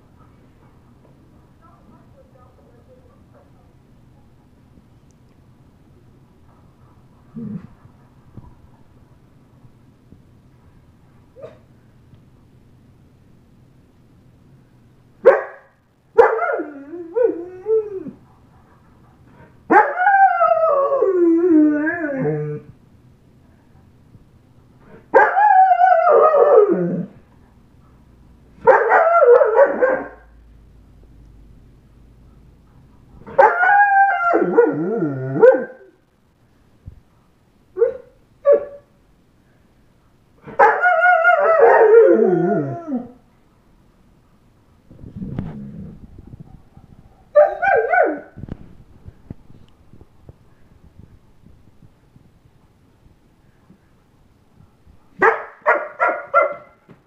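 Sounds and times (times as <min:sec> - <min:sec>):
dog howling: 0:16.2 - 0:18.2, 0:33.3 - 0:35.9, 0:40.6 - 0:43.2
dog yelping: 0:28.6 - 0:30.2.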